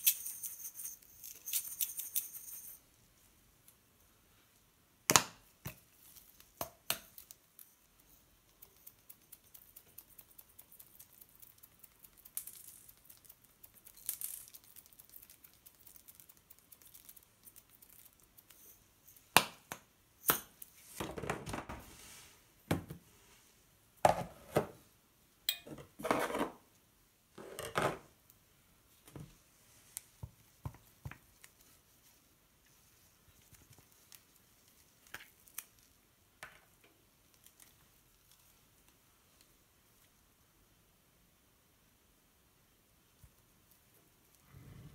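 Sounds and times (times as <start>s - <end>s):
sprinkles rustling from shaker: 0.0s - 2.9s.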